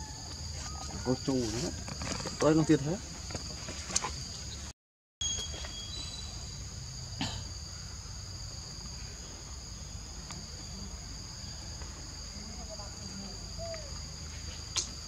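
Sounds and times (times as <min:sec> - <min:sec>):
insects chorus: 0:00.0 - 0:15.0
sharp click: 0:14.7 - 0:15.0.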